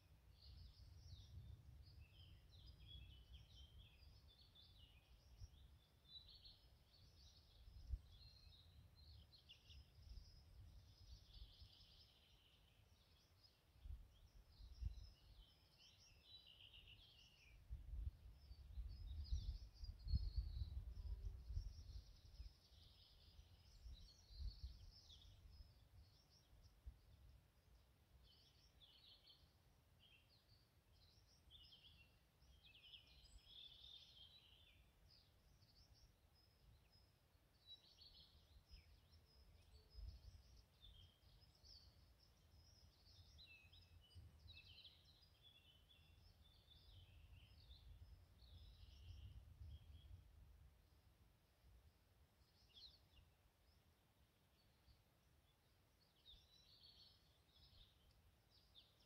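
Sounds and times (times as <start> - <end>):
songbirds chirping and trilling: 0.0 - 59.0.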